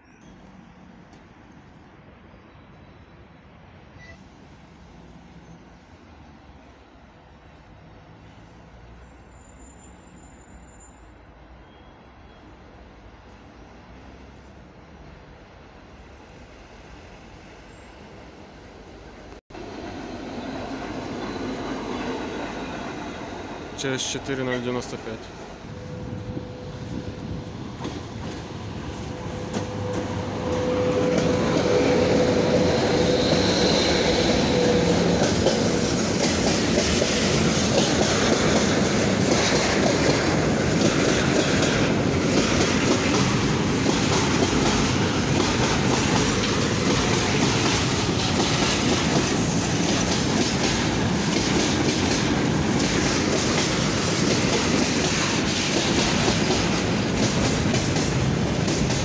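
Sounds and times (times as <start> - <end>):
freight train rumbling past: 11.1 - 59.0
wheels clicking over rail joints: 34.6 - 59.0.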